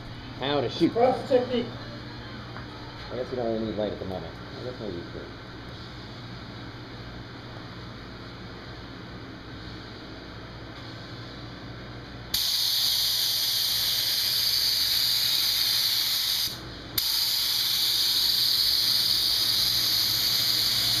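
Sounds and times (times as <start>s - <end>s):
spray gun hissing: 12.4s - 21.0s.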